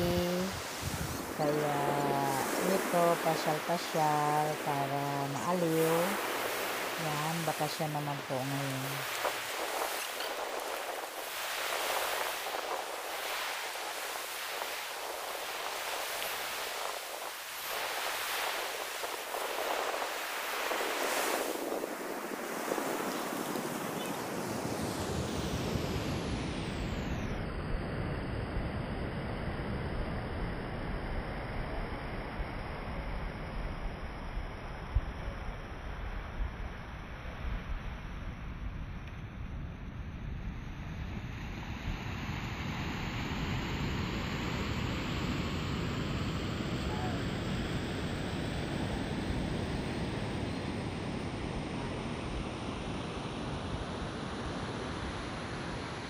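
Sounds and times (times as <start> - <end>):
wind buffeting microphone: 0.0 - 26.8
surf breaking on shore: 0.0 - 27.3, 40.6 - 56.0.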